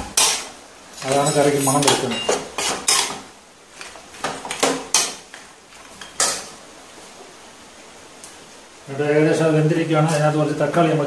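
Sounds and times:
spatula scraping metal pan: 0.0 - 3.2.

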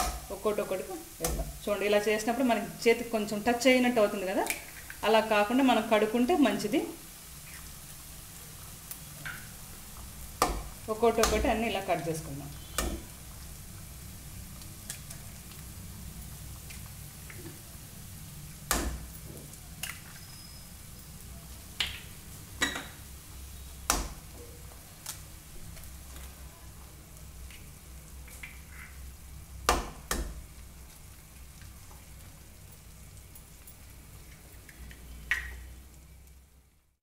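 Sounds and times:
cabbage frying in pan: 0.0 - 36.9.

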